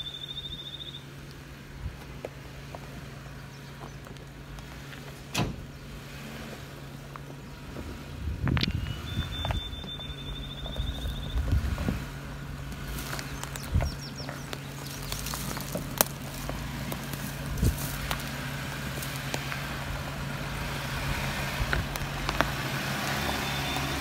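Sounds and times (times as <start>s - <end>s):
engine humming: 0.0s - 24.0s
tyres crunching on stone: 12.6s - 19.8s, 21.6s - 24.0s.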